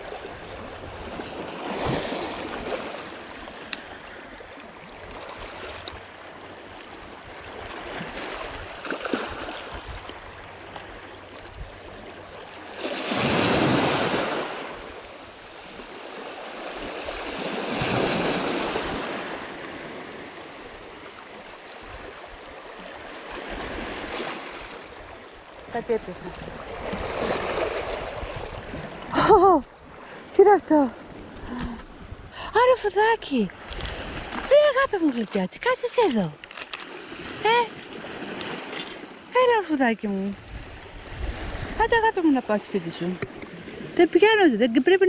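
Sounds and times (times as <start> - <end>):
waves washing over pebble shore: 12.7 - 15.0.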